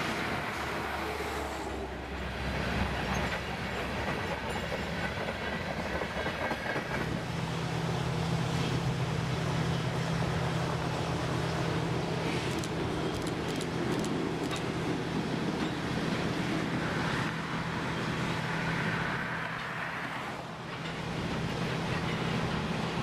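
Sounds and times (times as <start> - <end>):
train wheels clacking on rails: 2.3 - 7.3, 20.6 - 23.0.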